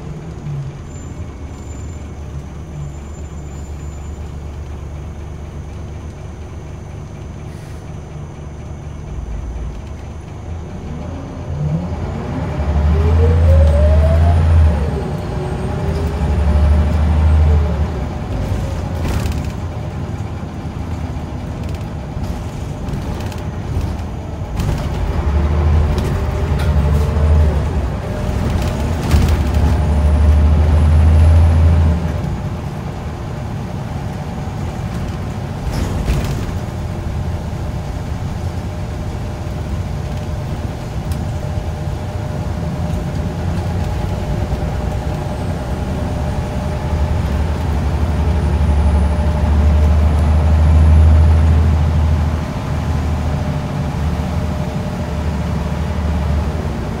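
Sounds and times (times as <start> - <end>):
bus diesel engine drone: 0.0 - 57.0
road noise: 0.0 - 57.0
bus body rattle: 17.9 - 31.1, 32.1 - 48.0.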